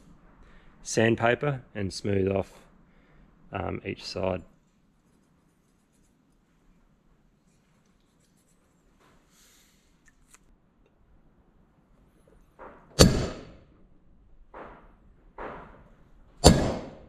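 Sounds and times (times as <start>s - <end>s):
faint handling noises: 4.5s - 11.1s
hammer striking metal punch: 12.6s - 13.6s, 16.4s - 17.0s.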